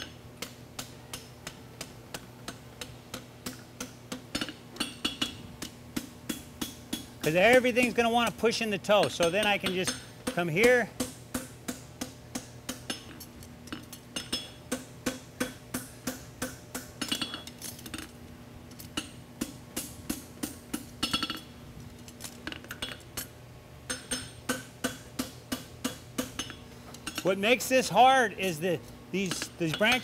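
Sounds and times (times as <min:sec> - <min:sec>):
anvil ringing: 0:29.2 - 0:30.0
hammer striking hot metal: 0:29.2 - 0:30.0.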